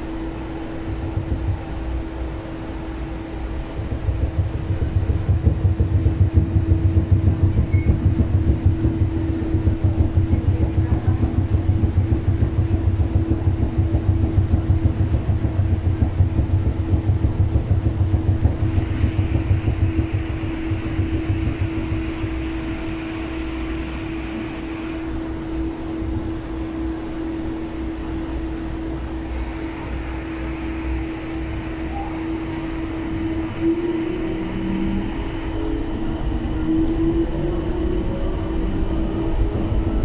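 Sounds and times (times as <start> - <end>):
people mover hum and rumble: 0.0 - 40.0
hiss: 29.3 - 36.4.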